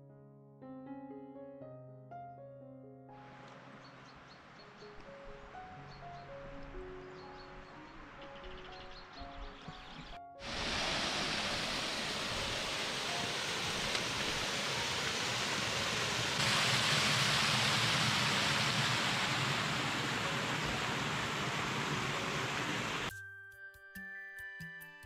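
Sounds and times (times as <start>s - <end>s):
rushing water: 10.4s - 23.1s.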